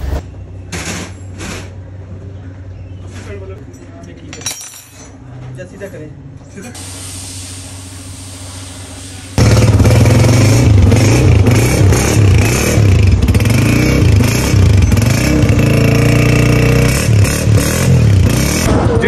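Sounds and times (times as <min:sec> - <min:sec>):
motorcycle engine revving: 0:09.4 - 0:19.0.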